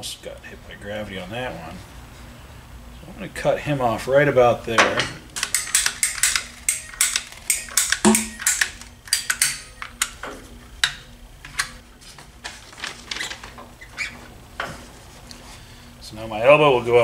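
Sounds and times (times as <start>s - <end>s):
pipe cutter clicking through hose: 5.5s - 9.6s.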